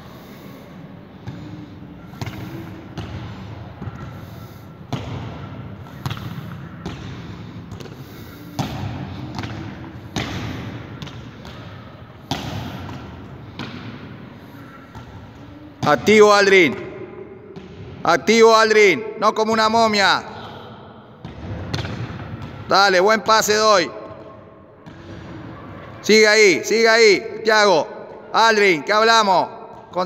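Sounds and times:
football kicks echoing: 0:04.9 - 0:08.0, 0:08.6 - 0:18.0, 0:21.2 - 0:22.7.

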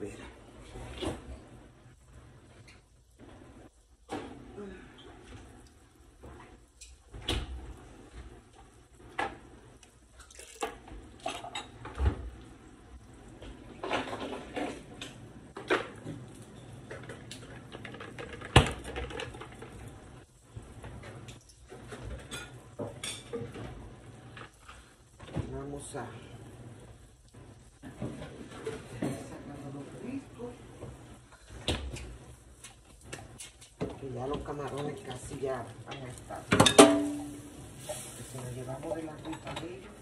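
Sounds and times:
dishes and utensils clinking: 0:36.5 - 0:37.6.

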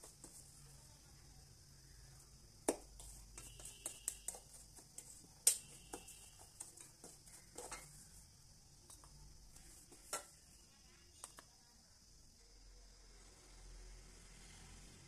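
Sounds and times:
wooden spatula scraping steel pan: 0:03.0 - 0:08.2.

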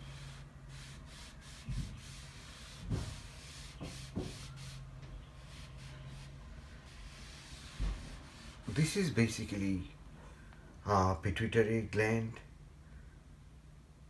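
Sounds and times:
eraser rubbing on whiteboard: 0:00.0 - 0:08.9.

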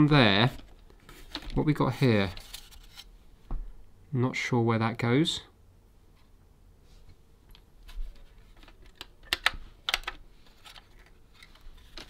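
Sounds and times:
plastic and metal parts clicking: 0:08.5 - 0:12.0.

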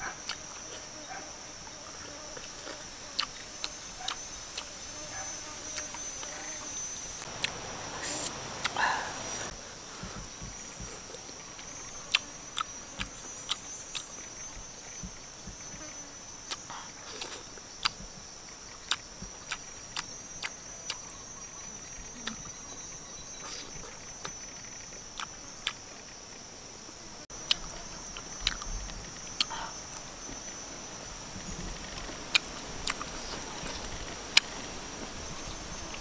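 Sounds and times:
high-pitched insect drone: 0:00.0 - 0:34.1
lip smacks and chewing: 0:16.5 - 0:21.0, 0:27.4 - 0:28.7, 0:29.3 - 0:30.0, 0:32.0 - 0:33.2.

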